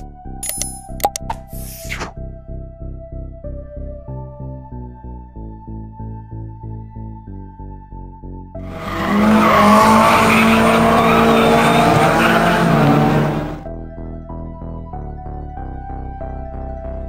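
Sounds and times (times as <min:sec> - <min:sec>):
pulsed background music: 0:00.0 - 0:17.0
racing car engine at high revs: 0:08.6 - 0:13.7.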